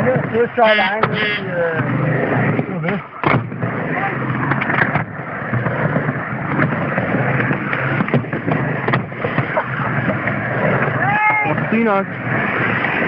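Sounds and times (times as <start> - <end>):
skateboard wheels rolling on ramp: 0.0 - 13.0
skateboard knocking on ramp: 4.4 - 11.6.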